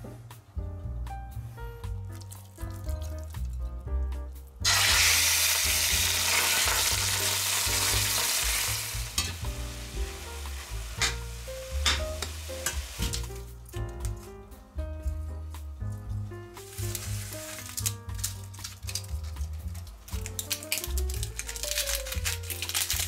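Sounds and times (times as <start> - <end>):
light background music: 0.0 - 23.0
meat sizzling in hot oil: 4.6 - 13.5, 16.6 - 18.7.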